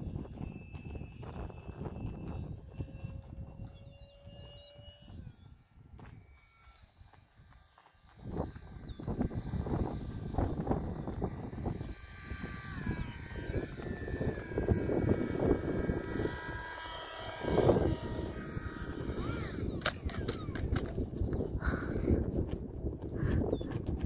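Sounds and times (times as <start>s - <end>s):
model airplane motor whining: 0.0s - 24.0s
model landing clicks on asphalt: 10.8s - 21.5s.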